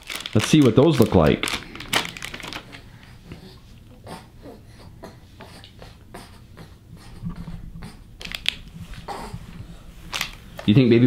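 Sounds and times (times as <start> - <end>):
plastic package clicks and rustles: 0.0 - 2.9, 8.2 - 9.0, 10.1 - 10.7.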